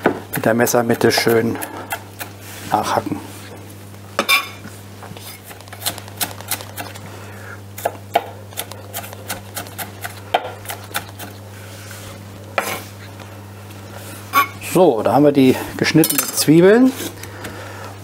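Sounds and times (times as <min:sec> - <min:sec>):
steady low hum: 0:00.0 - 0:18.0
knife chopping on wooden board: 0:07.8 - 0:11.4.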